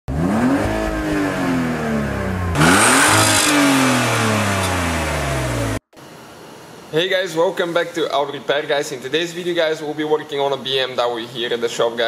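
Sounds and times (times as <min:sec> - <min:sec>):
car engine revving: 0:00.1 - 0:05.8.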